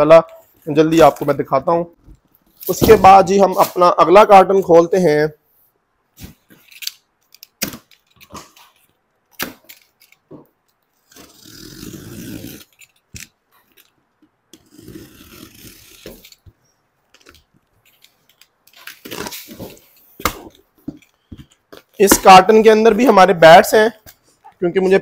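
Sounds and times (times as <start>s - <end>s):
box cutter slitting tape: 11.0s - 13.4s, 14.6s - 16.4s.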